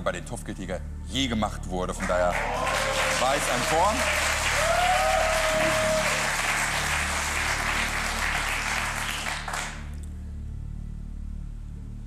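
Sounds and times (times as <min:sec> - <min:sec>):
quiet background music: 0:00.0 - 0:12.0
studio audience applauding: 0:02.0 - 0:10.0.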